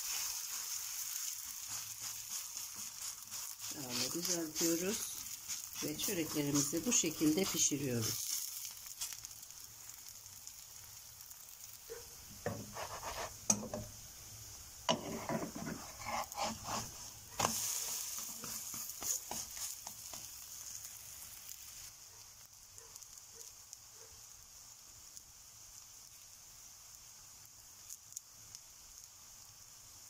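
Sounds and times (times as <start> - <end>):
batter sizzling in a frying pan: 0.0 - 30.0
spatula scraping and knocking pan: 1.4 - 8.4, 12.4 - 13.9, 14.9 - 20.4.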